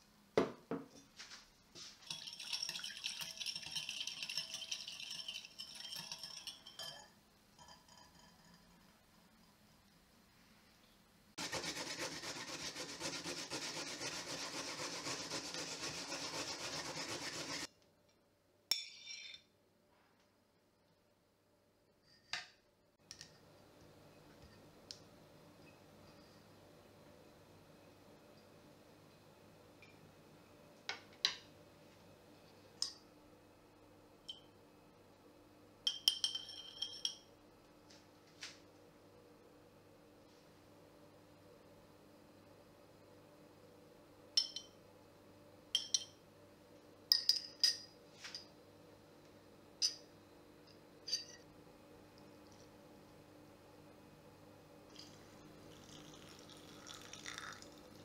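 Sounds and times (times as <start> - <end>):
teaspoon stirring in glass bowl: 2.0 - 9.6, 11.4 - 17.7
kitchenware clinks and taps: 35.9 - 37.3.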